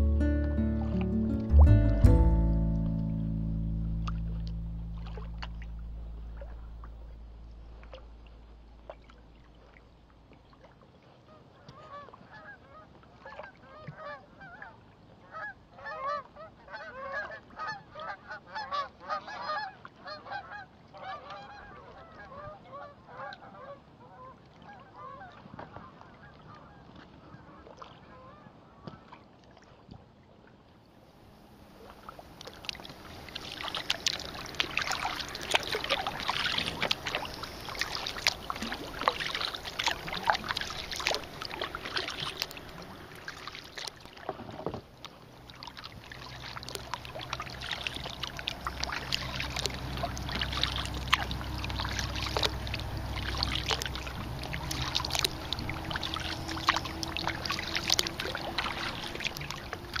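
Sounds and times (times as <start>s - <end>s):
low steady hum: 0.0s - 10.3s, 31.2s - 60.0s
paddle splashing in water: 0.0s - 30.8s, 31.6s - 60.0s
water dripping: 0.3s - 9.7s, 32.4s - 44.2s, 45.1s - 60.0s.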